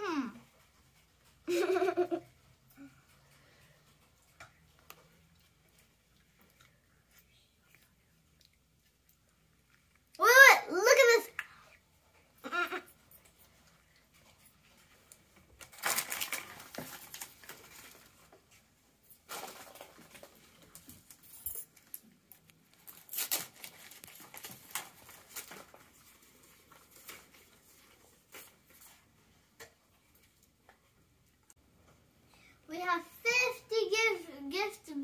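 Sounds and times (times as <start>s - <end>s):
wrappers and paper bags crinkling: 14.2s - 29.2s.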